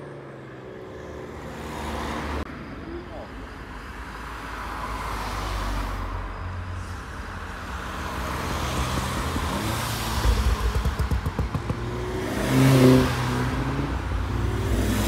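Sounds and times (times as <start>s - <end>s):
tyre and road noise: 0.0s - 15.0s
exhaust pops and crackles: 10.2s - 12.0s.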